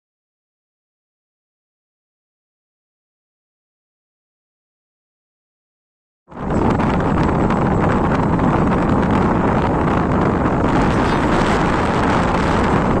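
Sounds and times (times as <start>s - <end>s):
wind buffeting microphone: 6.3s - 13.0s.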